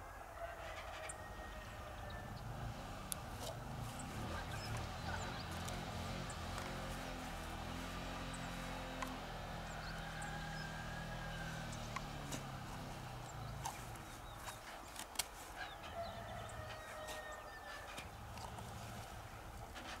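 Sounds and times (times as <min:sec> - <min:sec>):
faint animal calls: 0:08.0 - 0:20.0.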